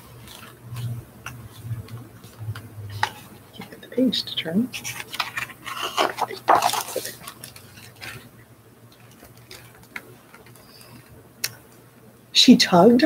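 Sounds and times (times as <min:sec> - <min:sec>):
paper page rustling: 0:00.0 - 0:03.6, 0:04.7 - 0:08.3.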